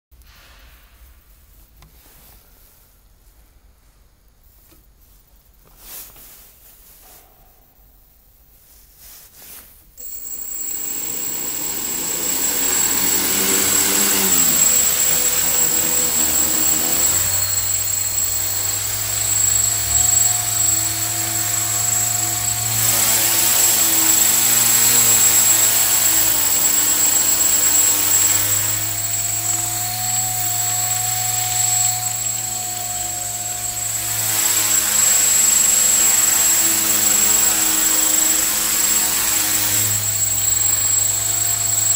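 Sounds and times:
high electronic whine: 10.0s - 41.9s
multirotor propellers droning: 10.0s - 41.9s.

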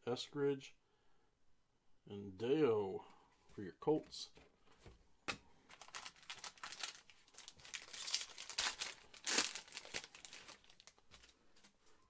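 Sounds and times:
foil wrapper crinkling and tearing: 5.7s - 11.4s.

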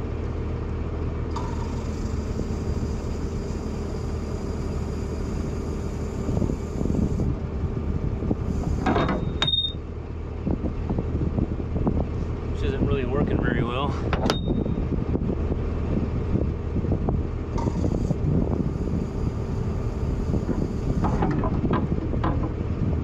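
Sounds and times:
diesel engine running: 0.0s - 23.0s
high squeal: 8.5s - 9.8s
metallic clanks and knocks: 21.0s - 22.6s.

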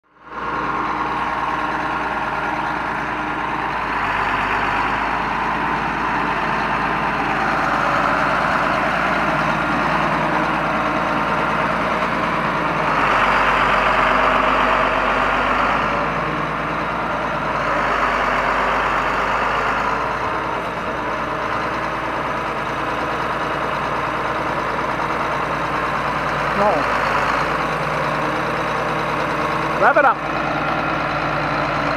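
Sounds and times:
tractor diesel engine idling: 0.0s - 31.9s.

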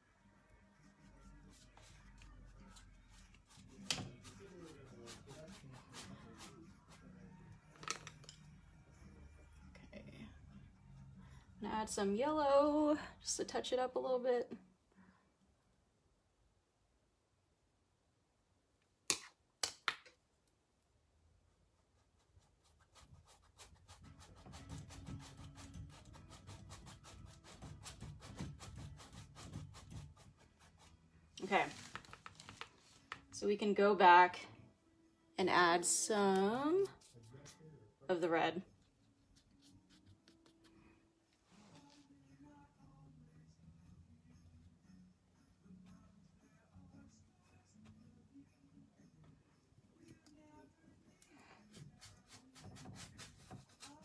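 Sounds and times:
paintbrush scratching on canvas: 1.1s - 6.7s, 21.8s - 32.1s, 36.8s - 37.7s, 39.3s - 40.8s, 51.6s - 54.0s.

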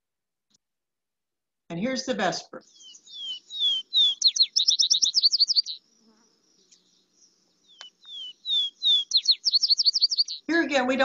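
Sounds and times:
sparrow song trill: 1.7s - 11.0s
down-slurred bird whistles: 2.7s - 5.8s, 7.7s - 10.5s.

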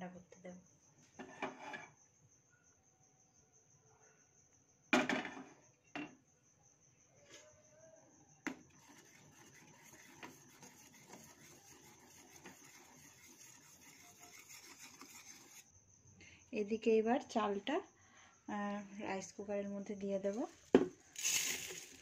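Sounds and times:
ladle scraping around pan: 8.8s - 15.6s.

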